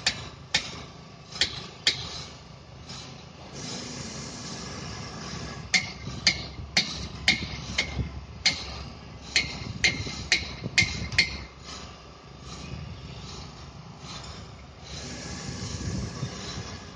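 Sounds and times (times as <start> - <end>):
hammer striking metal: 0.0 - 2.1, 5.7 - 11.5
steady site noise: 0.0 - 16.9.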